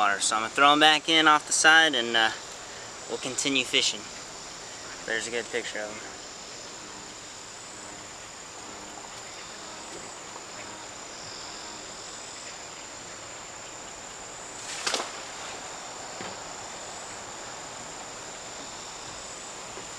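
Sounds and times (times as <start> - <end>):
high-pitched insect buzzing: 0.4 - 19.9
fish splashing into water: 14.6 - 15.6.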